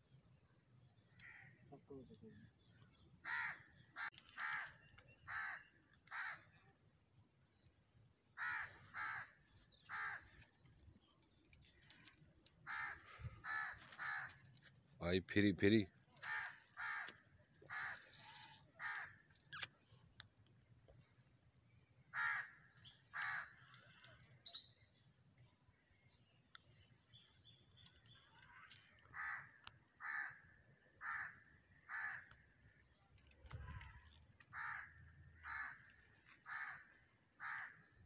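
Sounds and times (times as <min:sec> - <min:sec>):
crow cawing: 0:01.1 - 0:01.6, 0:03.2 - 0:06.6, 0:08.4 - 0:10.5, 0:12.0 - 0:14.5, 0:16.2 - 0:19.3, 0:22.1 - 0:24.1, 0:28.7 - 0:32.4, 0:33.9 - 0:37.9.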